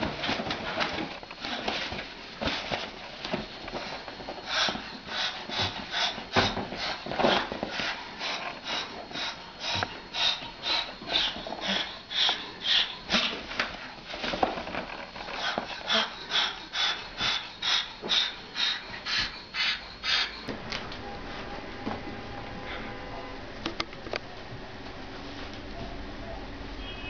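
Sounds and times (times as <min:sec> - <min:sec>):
animal sniffing breaths: 0:00.2 - 0:20.5.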